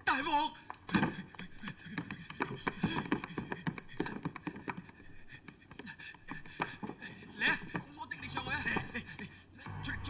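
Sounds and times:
footsteps on wooden stairs: 0:00.7 - 0:08.0.

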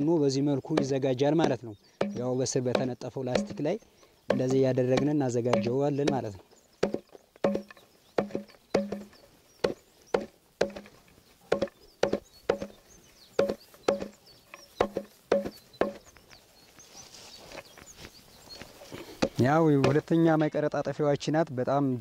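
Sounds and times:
axe chopping forage: 0:00.6 - 0:03.7, 0:04.3 - 0:12.8, 0:13.4 - 0:16.1, 0:18.9 - 0:20.2.

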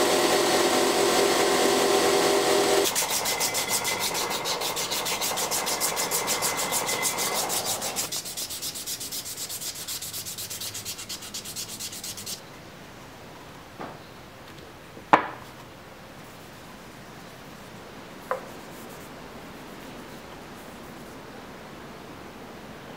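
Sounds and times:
sandpaper rubbing on wood: 0:02.8 - 0:12.4, 0:18.4 - 0:21.2.

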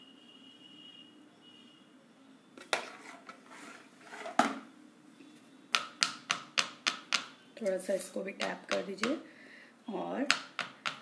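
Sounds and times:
spoon scraping plastic mould: 0:02.6 - 0:04.6
mould tapping on stone counter: 0:05.7 - 0:07.4, 0:08.4 - 0:09.2, 0:10.2 - 0:11.0.

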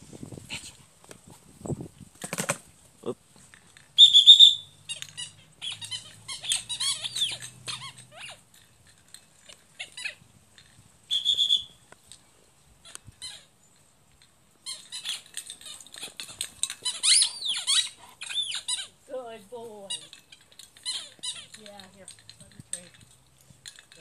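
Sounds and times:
squeaky ball squeaking: 0:04.0 - 0:08.5, 0:09.5 - 0:10.3, 0:14.6 - 0:19.0, 0:19.8 - 0:22.9.

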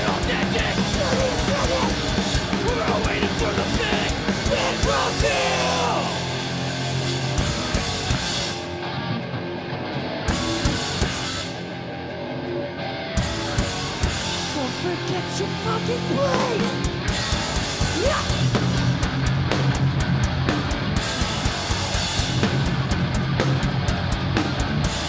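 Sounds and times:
person singing: 0:00.0 - 0:06.3, 0:14.5 - 0:16.9
bass: 0:00.0 - 0:25.0
distorted electric guitars: 0:00.0 - 0:25.0
drums: 0:00.0 - 0:25.0.

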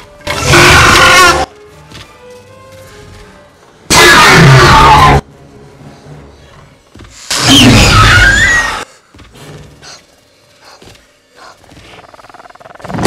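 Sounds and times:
distorted creature screech: 0:00.3 - 0:01.5, 0:03.9 - 0:05.2, 0:07.3 - 0:08.8.

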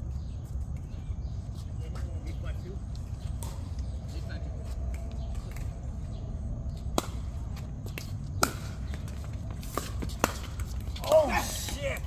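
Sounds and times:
pickleball paddle strikes: 0:06.9 - 0:11.2.

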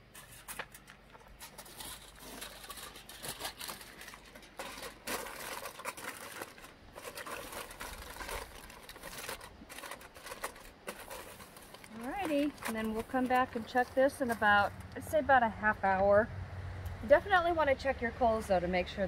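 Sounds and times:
aluminium foil crinkling: 0:00.0 - 0:15.0.

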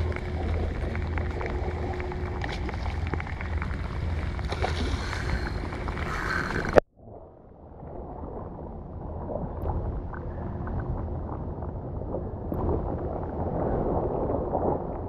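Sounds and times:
rain: 0:00.0 - 0:06.8
wind buffeting microphone: 0:00.0 - 0:06.8
choppy water: 0:00.0 - 0:15.0.

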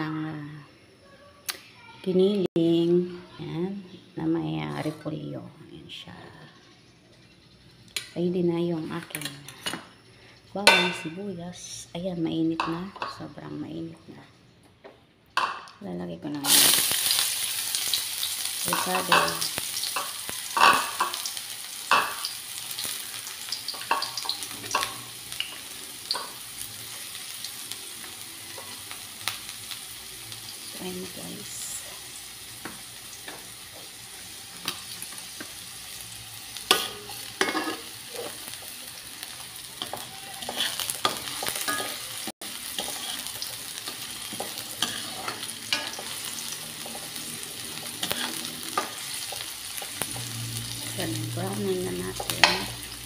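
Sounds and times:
garlic and onion sizzling in oil: 0:00.0 - 0:14.5, 0:15.4 - 0:53.0
spatula scraping a wok: 0:16.6 - 0:29.0, 0:31.5 - 0:53.0.

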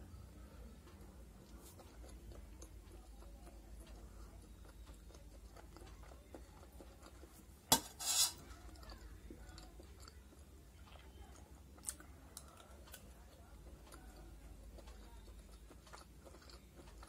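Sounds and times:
faint chewing: 0:00.4 - 0:17.0
spoon scraping plate: 0:07.7 - 0:08.5.

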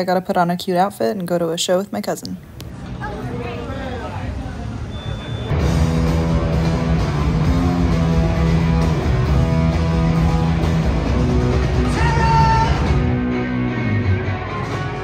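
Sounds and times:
heavy rock band playing live: 0:05.5 - 0:15.0.

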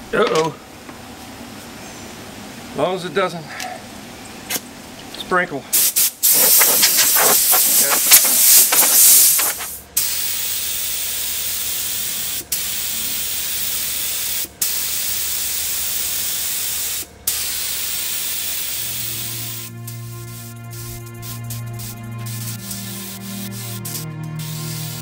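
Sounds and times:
compressed-air blow gun blasting: 0:05.8 - 0:10.5, 0:14.6 - 0:25.0
paint spray gun hissing: 0:05.8 - 0:25.0.

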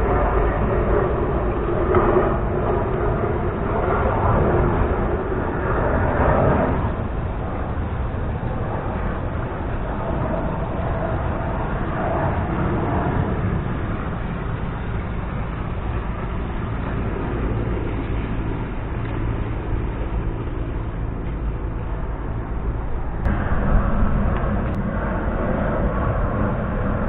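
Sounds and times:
steady outdoor rush: 0:00.0 - 0:27.0
boat engine running: 0:14.4 - 0:26.3.

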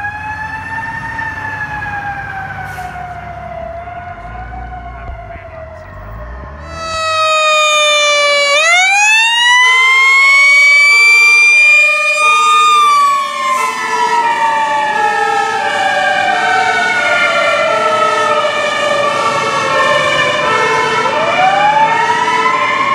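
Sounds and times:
two-tone siren: 0:00.0 - 0:22.9
wailing siren: 0:00.0 - 0:22.9.

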